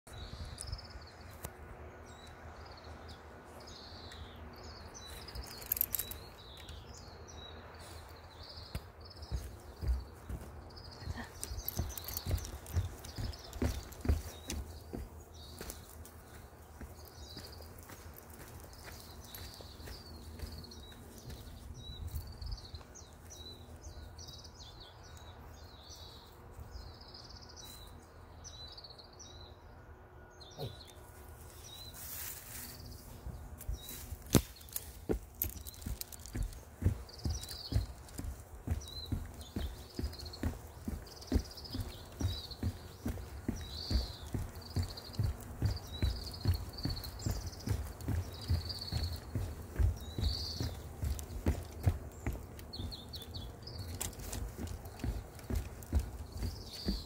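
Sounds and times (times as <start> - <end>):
small birds chirping: 0.1 - 57.0
knocks and scuffs: 8.7 - 16.0, 33.6 - 57.0.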